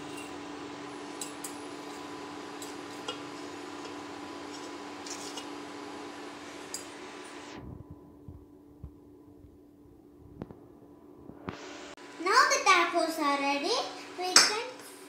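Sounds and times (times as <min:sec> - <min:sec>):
low hum: 0:00.0 - 0:12.2
metal fork scraping pot: 0:01.2 - 0:05.6.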